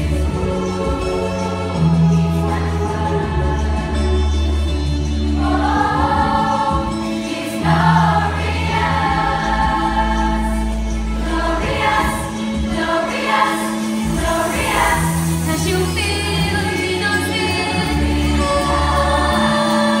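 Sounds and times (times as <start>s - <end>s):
choir singing in harmony: 0.0s - 20.0s.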